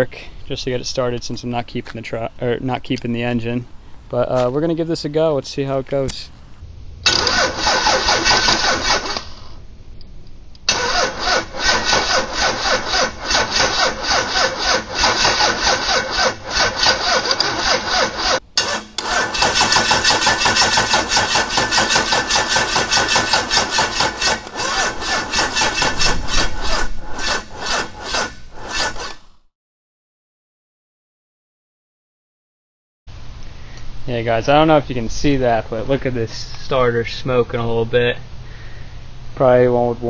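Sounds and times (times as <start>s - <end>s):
diesel engine cranking: 2.4s - 9.3s, 10.7s - 29.4s.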